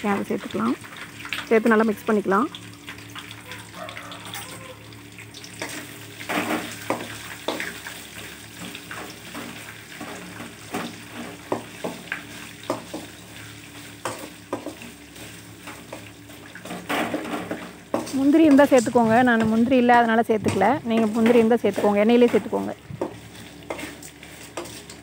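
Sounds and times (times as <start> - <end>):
food sizzling in hot oil: 0.0 - 25.0
wooden spatula scraping a pot: 20.4 - 25.0.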